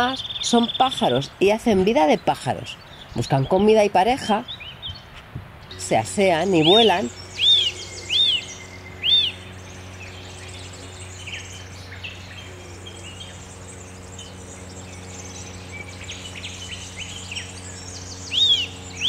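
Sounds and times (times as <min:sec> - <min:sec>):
steady low hum: 0:00.0 - 0:19.0
faint bird chirps: 0:04.4 - 0:19.0
bird whistled call: 0:06.5 - 0:19.0.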